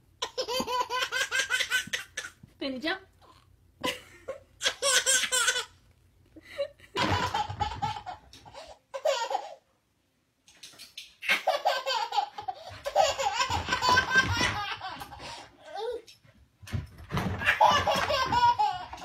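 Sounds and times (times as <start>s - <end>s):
baby laughing: 0.2s - 2.4s, 4.6s - 5.8s, 6.9s - 9.6s, 11.2s - 16.1s, 17.3s - 19.0s.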